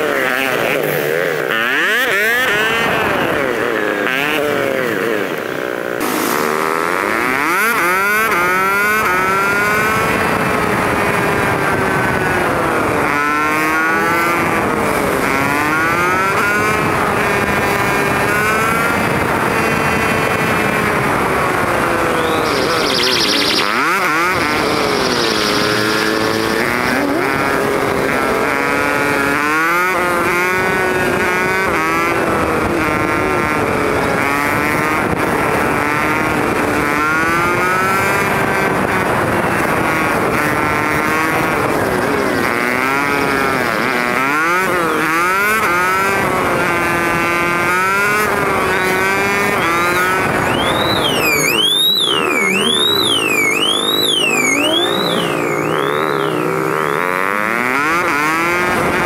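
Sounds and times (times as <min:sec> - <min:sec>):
motorbike engine revving: 0:00.0 - 0:59.0
ambulance siren: 0:21.8 - 0:27.4, 0:49.6 - 0:56.9.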